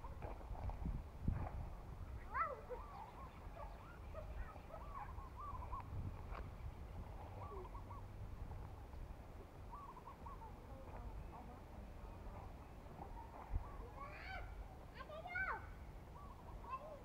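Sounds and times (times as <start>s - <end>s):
birds warbling: 2.2s - 8.2s, 8.8s - 11.4s, 16.0s - 17.0s.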